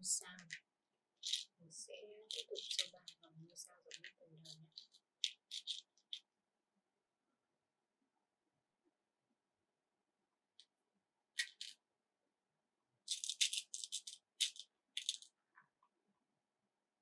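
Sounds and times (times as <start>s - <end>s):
plastic beads rattling: 1.2s - 1.5s, 2.3s - 6.2s, 11.4s - 11.8s, 13.1s - 15.4s.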